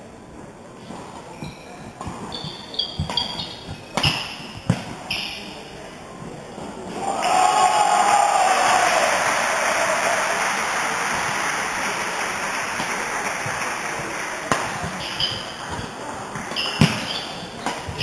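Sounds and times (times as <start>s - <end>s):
shoes squeaking on wooden court: 0.8s - 5.8s, 14.8s - 18.0s
spectators applauding: 7.0s - 14.5s.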